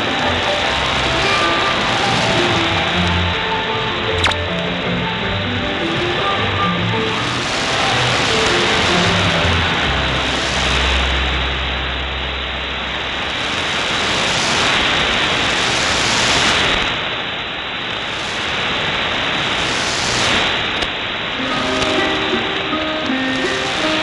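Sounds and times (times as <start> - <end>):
low hum: 0.0 - 15.8
radio hiss and static: 0.0 - 24.0.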